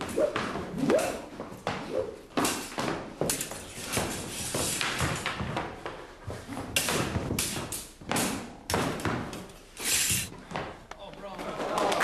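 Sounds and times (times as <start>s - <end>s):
swords clashing: 0.0s - 1.3s.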